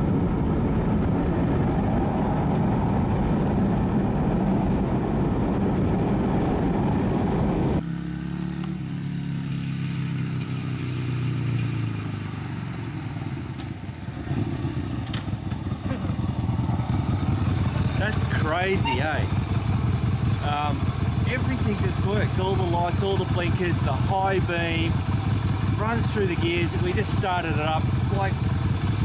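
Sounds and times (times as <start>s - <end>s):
road noise inside car: 0.0s - 10.6s, 11.2s - 21.3s
motorcycle engine idling: 13.6s - 29.0s.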